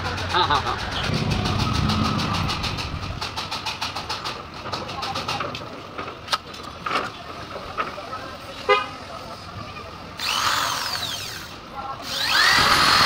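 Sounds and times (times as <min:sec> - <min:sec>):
vehicle engine chugging: 0:00.0 - 0:04.6.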